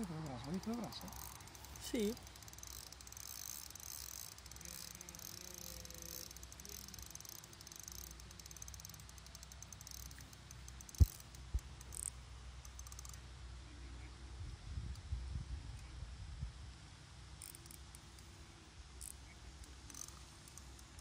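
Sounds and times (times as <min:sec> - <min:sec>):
fishing reel clicking: 0:00.0 - 0:13.2, 0:17.4 - 0:18.4, 0:19.0 - 0:21.0.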